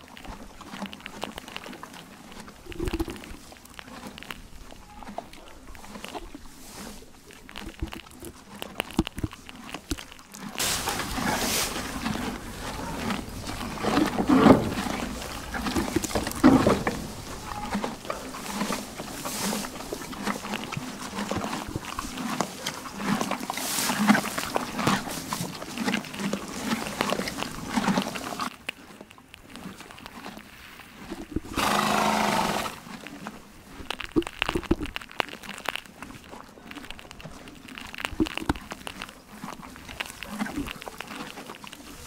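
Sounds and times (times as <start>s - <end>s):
horse chewing hay: 0.0s - 42.0s
horse snorting: 9.5s - 28.5s, 31.0s - 33.3s.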